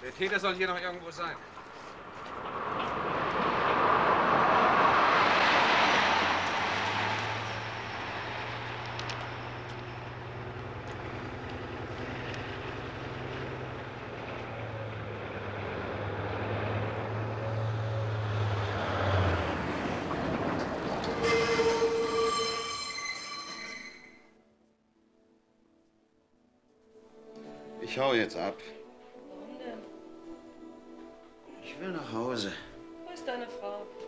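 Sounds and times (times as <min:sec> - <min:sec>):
railway carriage rushing past: 0:00.0 - 0:24.4
locomotive engine drone: 0:00.7 - 0:24.2.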